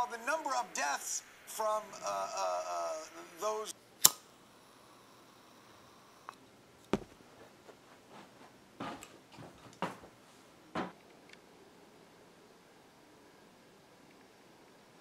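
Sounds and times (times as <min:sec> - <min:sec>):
household objects set down: 0:07.0 - 0:07.2, 0:10.8 - 0:11.0.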